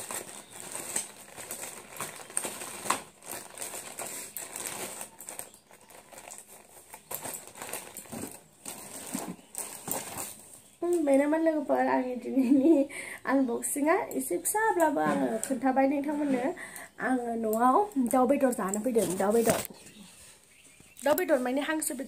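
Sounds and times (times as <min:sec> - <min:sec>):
plastic packaging crinkling: 0:00.0 - 0:11.1, 0:18.4 - 0:19.7.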